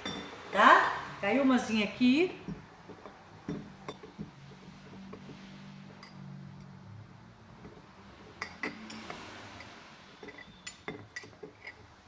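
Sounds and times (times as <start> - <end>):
spoon and fruit clinking on glass: 0.0 - 0.5, 2.4 - 4.2, 4.9 - 6.8, 8.3 - 11.9.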